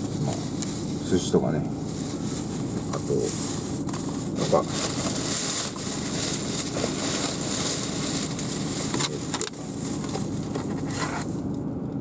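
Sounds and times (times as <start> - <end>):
car cabin hiss and rumble: 0.0 - 12.0
plastic crinkles: 1.8 - 11.3.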